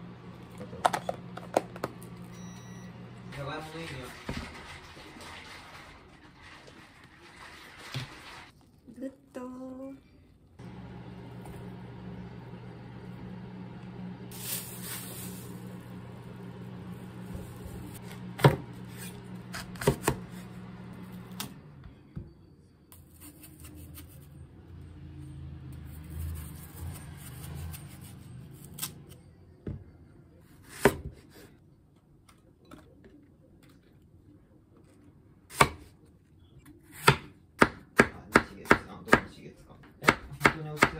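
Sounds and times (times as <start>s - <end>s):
low steady hum: 8.6s - 23.2s.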